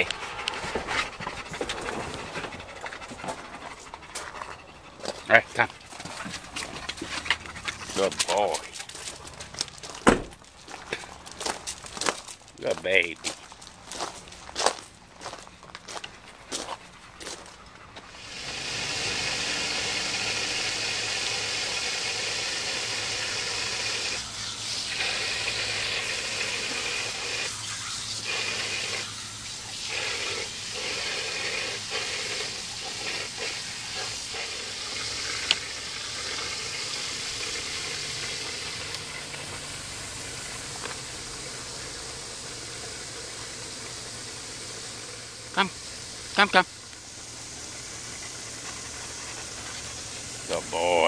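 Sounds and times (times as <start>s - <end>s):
hose water splashing into pool: 0.0s - 3.3s, 5.6s - 9.7s, 18.0s - 51.0s
dog biting and lapping water: 0.0s - 10.2s, 16.6s - 46.4s, 47.2s - 51.0s.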